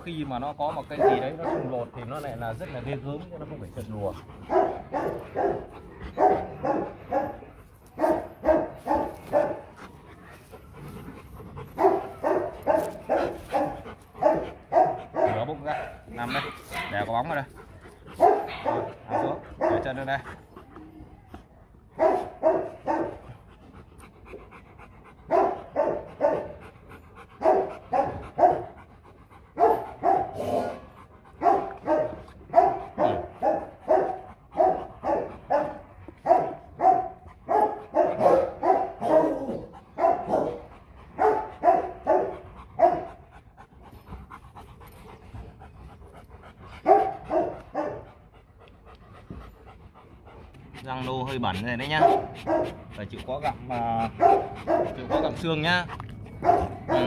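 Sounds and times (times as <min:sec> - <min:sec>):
dog barking: 0:00.9 - 0:01.9, 0:04.5 - 0:07.4, 0:08.0 - 0:09.7, 0:11.8 - 0:17.1, 0:18.2 - 0:20.0, 0:22.0 - 0:23.2, 0:25.3 - 0:26.6, 0:27.4 - 0:28.7, 0:29.6 - 0:30.8, 0:31.4 - 0:43.1, 0:46.8 - 0:48.1, 0:51.9 - 0:52.8, 0:54.2 - 0:55.4, 0:56.4 - 0:57.0.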